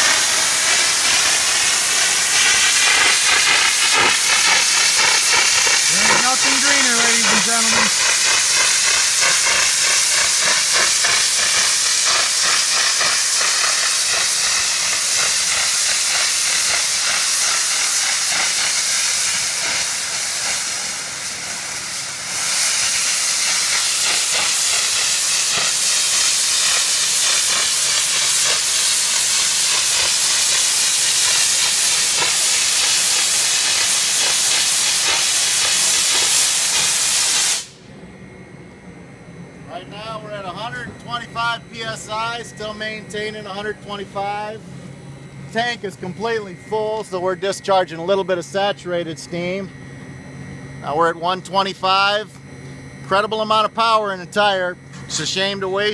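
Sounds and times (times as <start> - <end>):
steam venting hiss: 0.0 - 37.8.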